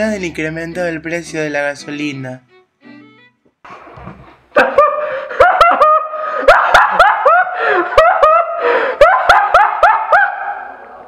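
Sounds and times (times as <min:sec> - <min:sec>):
man laughing: 0:04.5 - 0:09.2.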